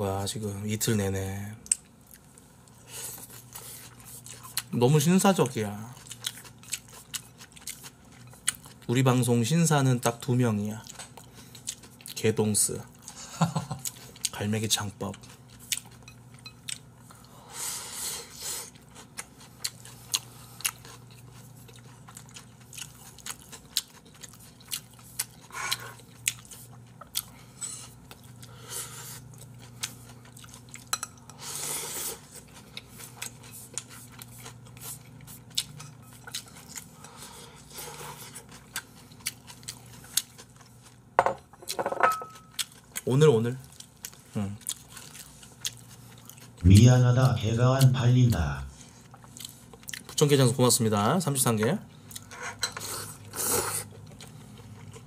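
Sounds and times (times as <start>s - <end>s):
low steady hum: 0.0s - 55.0s
wet chewing: 18.7s - 27.4s, 32.3s - 41.0s, 42.4s - 46.8s, 49.0s - 50.3s.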